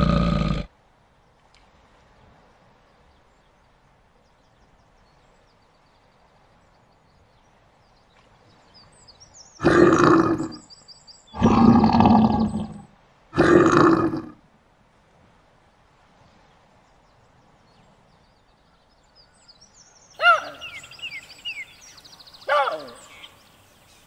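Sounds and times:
lion roars: 0.0s - 0.7s, 9.6s - 10.6s, 11.4s - 14.4s.

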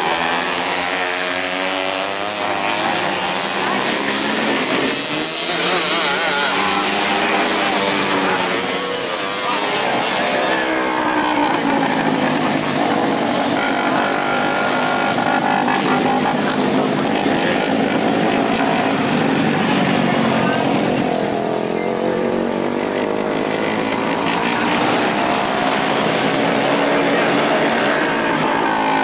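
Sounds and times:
race car engines revving: 0.0s - 29.0s.

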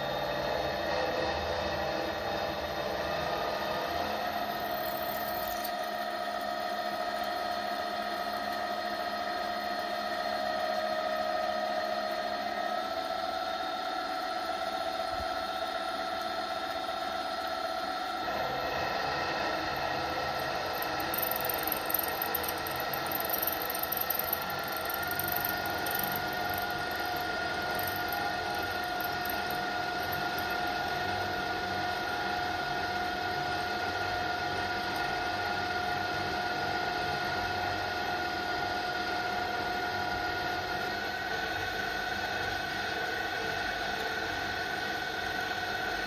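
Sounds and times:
mill motor whine: 0.0s - 46.0s
drill bit drilling cast iron: 3.6s - 10.1s, 18.3s - 37.4s.

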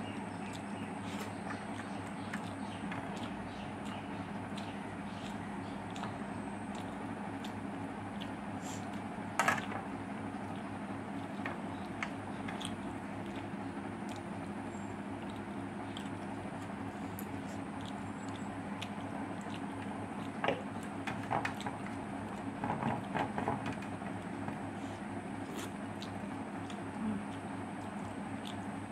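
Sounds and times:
steady low hum: 0.0s - 28.9s
person chewing: 0.4s - 9.7s, 10.4s - 14.6s, 15.2s - 21.0s, 25.4s - 28.8s.

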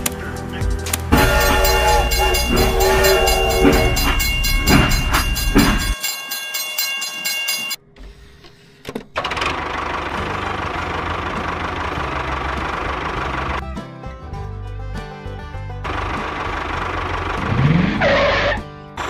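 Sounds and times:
rhythmic train clatter: 0.2s - 7.8s, 10.2s - 13.6s
toy train whistle tones: 1.1s - 6.1s, 18.0s - 18.6s.

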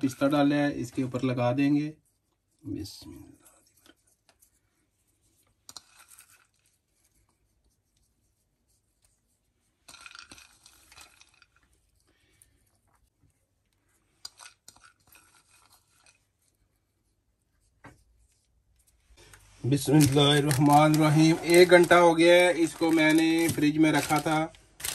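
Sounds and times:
faint rustling and scratching: 0.0s - 24.9s
baking paper crinkling: 14.3s - 16.6s, 18.2s - 24.9s.

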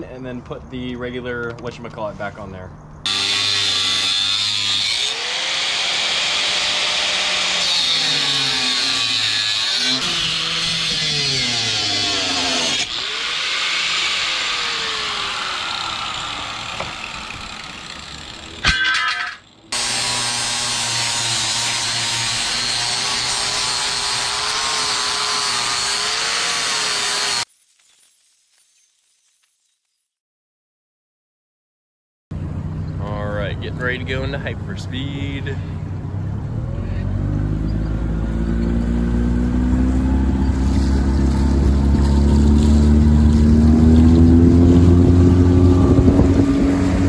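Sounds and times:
angle grinder grinding metal: 3.1s - 27.5s, 38.5s - 47.0s
power saw cutting wood: 3.1s - 27.5s, 38.4s - 47.0s.

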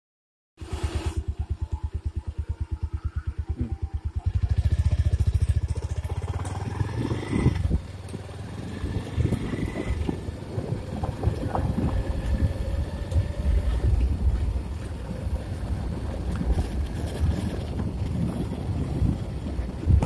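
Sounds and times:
faint steady tones: 1.3s - 4.3s
wind buffeting microphone: 2.1s - 20.0s.

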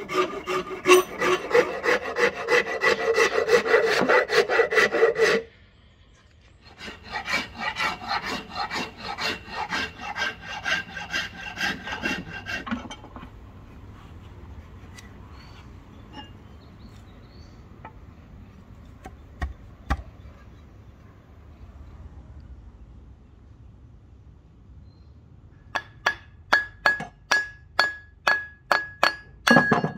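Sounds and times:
file scraping wood: 0.0s - 5.4s, 6.6s - 13.3s.

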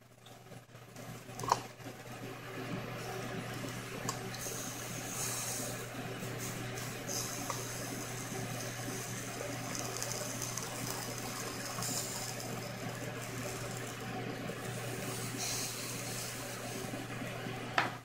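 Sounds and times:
chicken sizzling on grill: 2.8s - 17.8s.

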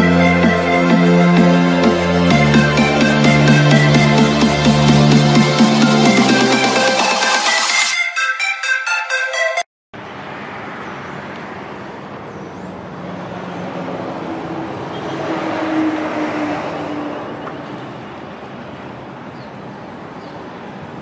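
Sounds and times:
road traffic hum: 0.0s - 7.2s, 10.0s - 21.0s
vehicle passing: 10.0s - 21.0s.

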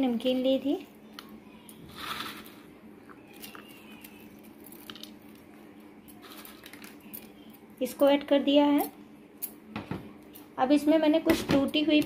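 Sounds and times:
crunching rustle of noodles: 1.8s - 7.5s.

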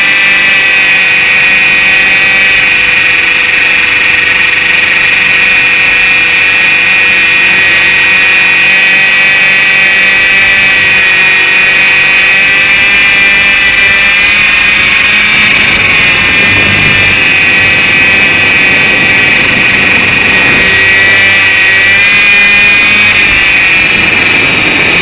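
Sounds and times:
high-pitched motor whine: 0.0s - 25.0s
rotors rushing: 0.0s - 25.0s.

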